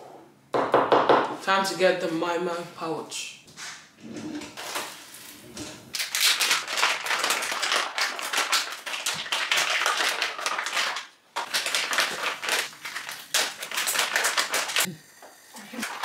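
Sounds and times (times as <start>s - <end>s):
plastic packaging crinkling: 5.9s - 14.9s.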